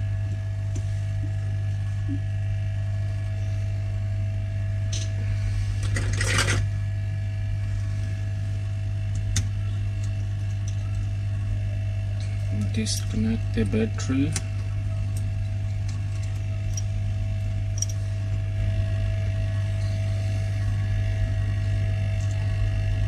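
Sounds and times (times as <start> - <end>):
steady low hum: 0.0 - 23.0
small parts clicking and rustling: 17.7 - 18.0.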